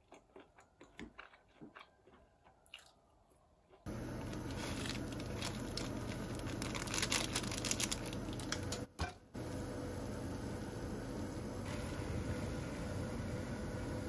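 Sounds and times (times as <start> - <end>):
crinkling handling sounds: 3.7 - 8.9
steady hum: 3.9 - 14.0.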